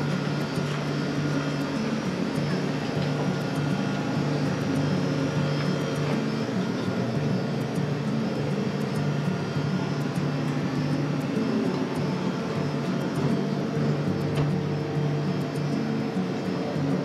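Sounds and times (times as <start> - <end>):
low machine drone: 0.0 - 17.0.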